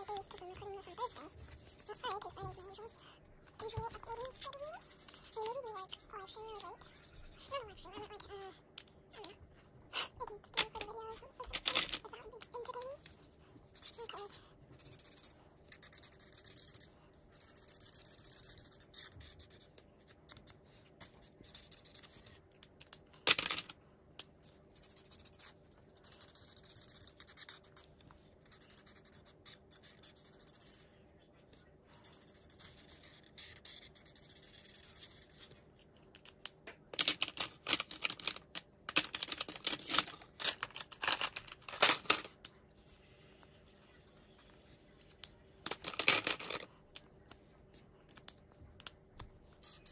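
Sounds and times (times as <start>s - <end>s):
marker scratching on paper: 0.0s - 3.0s, 3.6s - 8.2s, 9.9s - 22.5s, 24.4s - 30.9s, 31.5s - 35.6s.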